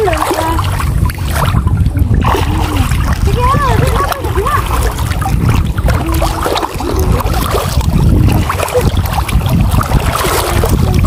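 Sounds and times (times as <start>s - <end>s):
water splashing around wading legs: 0.0s - 11.0s
wind buffeting microphone: 0.0s - 11.0s.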